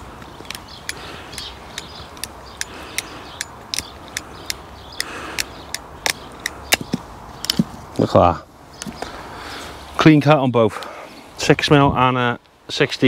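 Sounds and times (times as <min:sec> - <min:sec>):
ratchet cable cutter clicking: 0:00.4 - 0:06.8.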